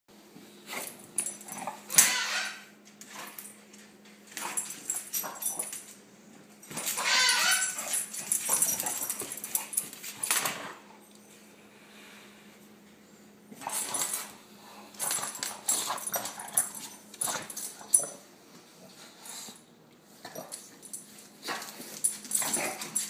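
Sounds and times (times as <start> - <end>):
dogs whining and grumbling: 1.2 - 3.4, 6.7 - 9.8
dogs scuffling: 6.6 - 10.6.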